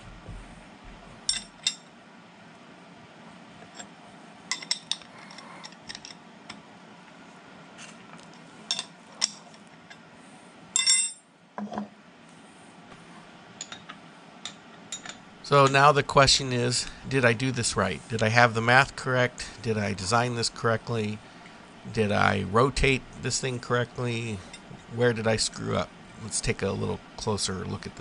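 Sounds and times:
wrench ringing on metal table: 1.3s - 1.8s, 10.8s - 11.2s.

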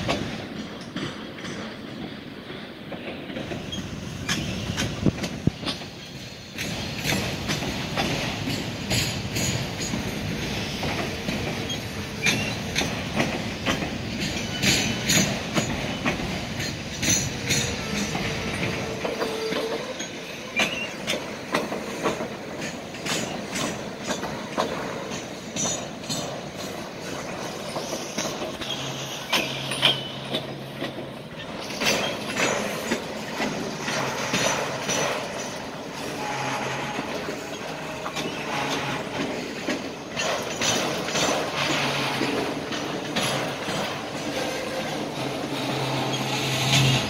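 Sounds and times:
freight train rolling past slowly: 0.0s - 47.0s
wheels clicking over rail joints: 0.0s - 47.0s
high wheel squeals: 11.6s - 12.9s, 14.4s - 21.2s, 27.7s - 30.6s, 33.7s - 39.6s, 44.1s - 47.0s.

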